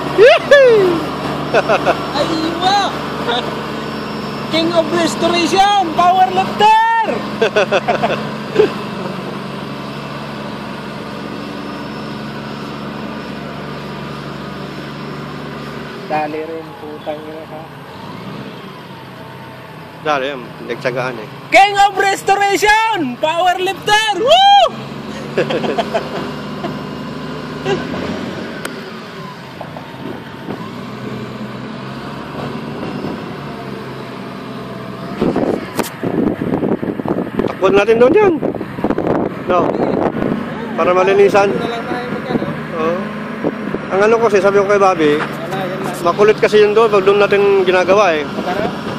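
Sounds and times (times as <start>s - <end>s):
diesel engine running: 0.0s - 48.9s.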